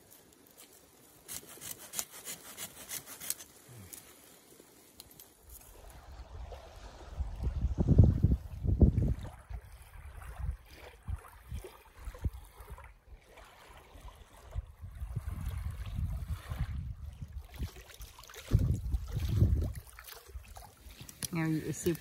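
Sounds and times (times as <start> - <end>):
small waves lapping on shore: 0.0 - 7.7, 8.4 - 22.0
wind buffeting microphone: 5.7 - 12.9, 14.3 - 20.6.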